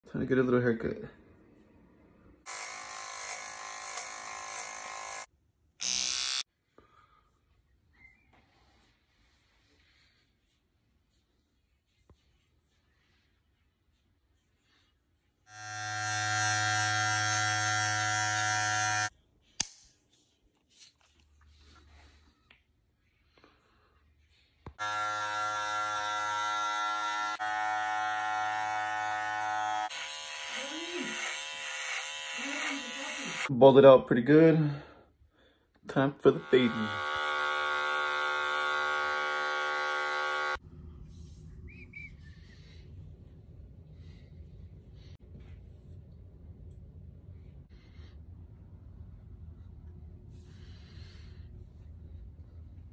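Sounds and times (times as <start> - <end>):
electric hair trimmer buzzing: 2.5 - 6.5, 15.5 - 19.1, 24.8 - 33.5, 36.3 - 40.6.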